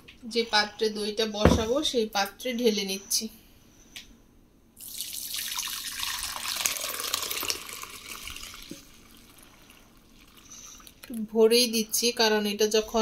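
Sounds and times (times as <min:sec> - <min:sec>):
liquid pouring into a bowl: 0:04.8 - 0:11.1.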